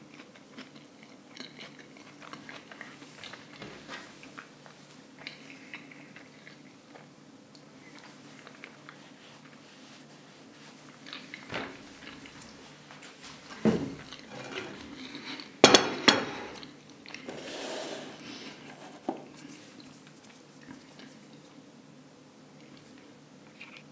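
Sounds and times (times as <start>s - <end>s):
cutlery clinking on a plate: 15.6s - 16.6s.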